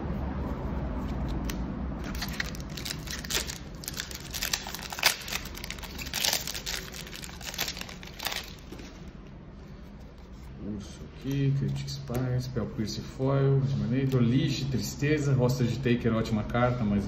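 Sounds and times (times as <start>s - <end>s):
foil wrapper crinkling and tearing: 1.4s - 8.8s.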